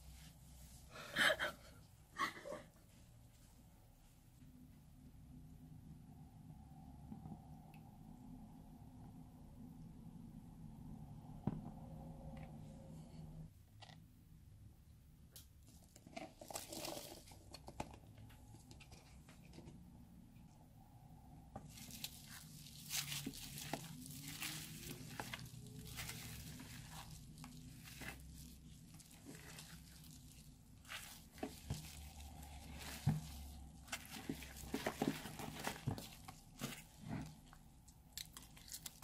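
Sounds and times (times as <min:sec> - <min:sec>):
slime crinkling and crackling: 0:15.7 - 0:17.7, 0:21.6 - 0:39.0.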